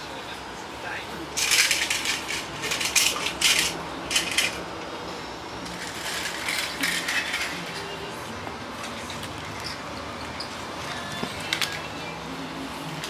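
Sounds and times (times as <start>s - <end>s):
plastic toy trains clattering: 1.4s - 4.6s, 5.7s - 7.9s, 11.2s - 11.9s.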